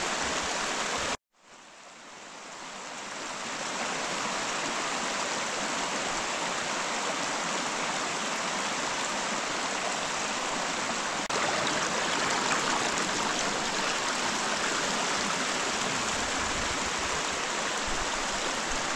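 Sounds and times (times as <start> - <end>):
brook gurgling over rocks: 11.1 - 18.9.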